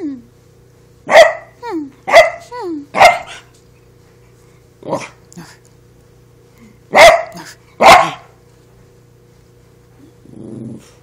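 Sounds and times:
small dog barking: 0:01.1 - 0:03.5, 0:06.9 - 0:08.4.

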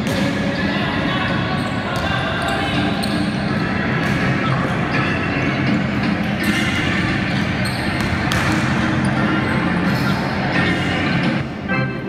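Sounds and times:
players' voices: 0:00.0 - 0:12.0
basketball bouncing on wooden court: 0:07.3 - 0:09.0.

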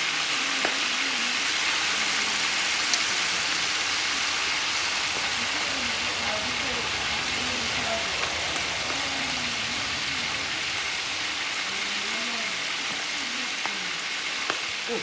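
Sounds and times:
chicken deep-frying in oil: 0:00.0 - 0:15.0.

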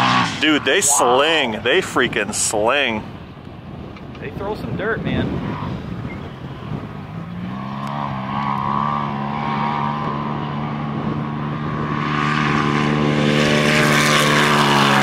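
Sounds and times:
engine revving high: 0:00.0 - 0:02.5, 0:06.7 - 0:15.0.

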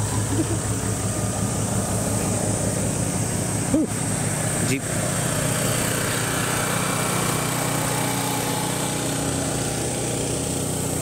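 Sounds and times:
off-road vehicle engine running: 0:00.0 - 0:11.0.

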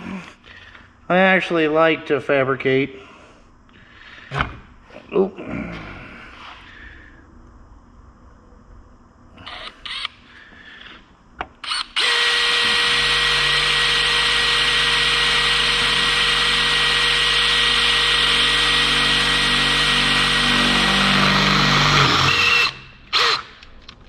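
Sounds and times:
drill boring through metal: 0:11.6 - 0:23.6
drill clicks: 0:11.6 - 0:23.8.

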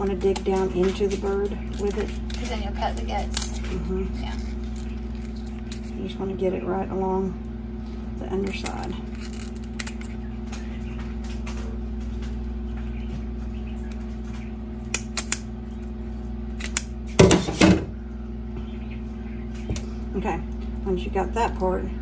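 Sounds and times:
scissors snipping: 0:00.0 - 0:05.9, 0:14.9 - 0:15.5, 0:16.6 - 0:16.9
steady hum: 0:00.0 - 0:22.0.

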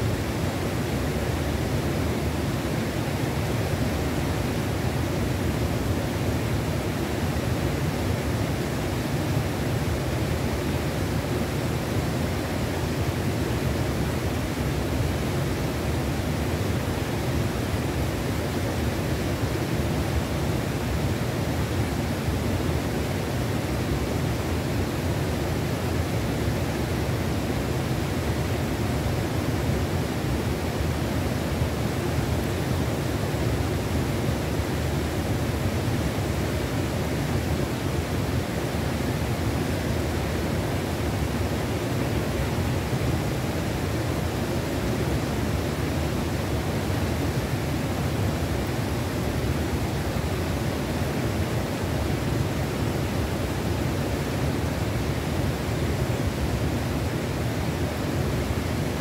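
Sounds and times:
river water rushing: 0:00.0 - 0:59.0.

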